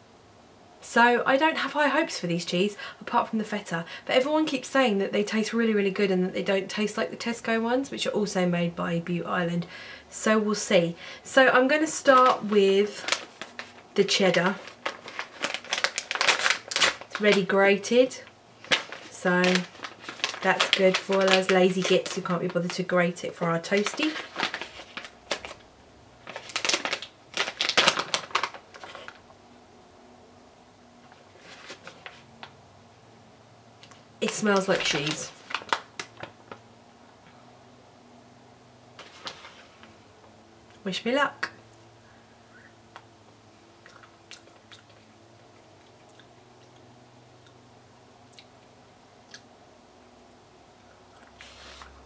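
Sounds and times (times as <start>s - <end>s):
low steady hum: 0.0s - 52.0s
plastic packet crinkling: 11.9s - 17.9s, 18.6s - 29.3s, 31.4s - 32.5s, 34.2s - 36.6s
person chewing: 43.8s - 47.6s.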